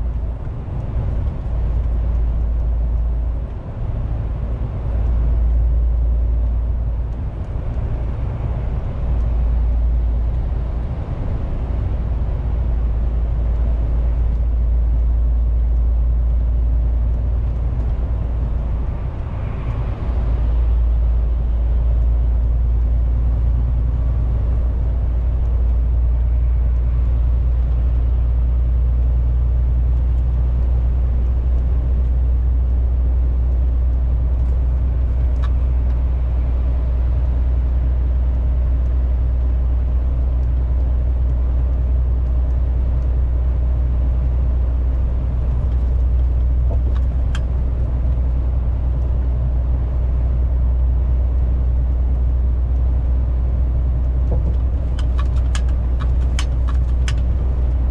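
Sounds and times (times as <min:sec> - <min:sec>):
truck engine droning in cab: 0:00.0 - 0:57.9
tyre and road noise: 0:00.0 - 0:57.9.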